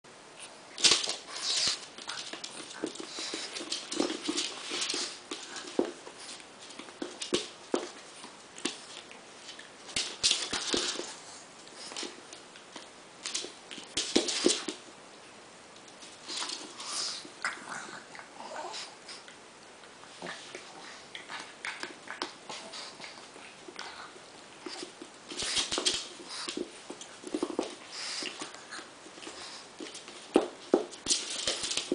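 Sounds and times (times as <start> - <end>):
paws scrabbling on wooden floor: 0.8 - 14.9, 24.6 - 31.9.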